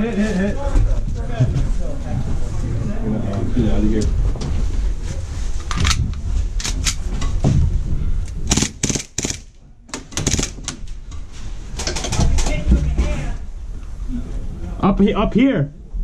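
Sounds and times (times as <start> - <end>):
airsoft pistol shots: 8.5 - 9.5.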